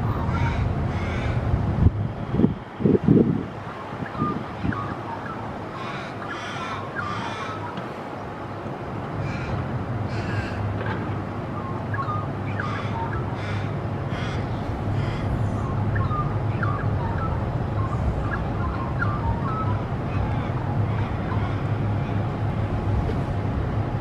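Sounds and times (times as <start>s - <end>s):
steady low rumble: 0.0s - 4.9s, 8.9s - 24.0s
raven cawing: 0.3s - 1.4s, 5.7s - 7.8s, 9.2s - 10.8s, 12.5s - 15.7s, 19.4s - 22.4s.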